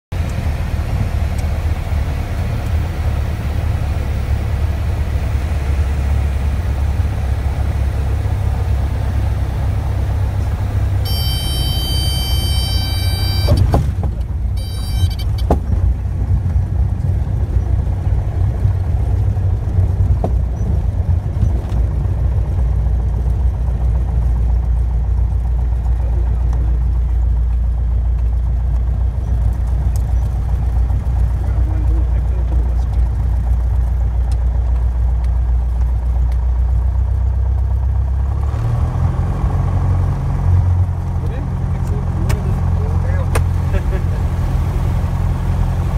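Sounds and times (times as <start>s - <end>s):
small aircraft engine and propeller: 0.1s - 45.9s
cockpit warning tone: 11.0s - 13.7s, 14.5s - 15.5s.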